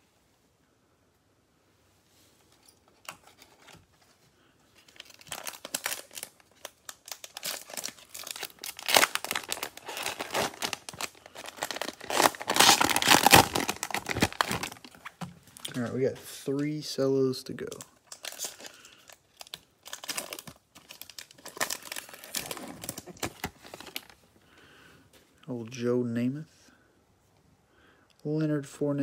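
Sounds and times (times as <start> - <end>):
plastic wrapper tearing and crinkling: 4.8 - 15.9, 17.6 - 24.2.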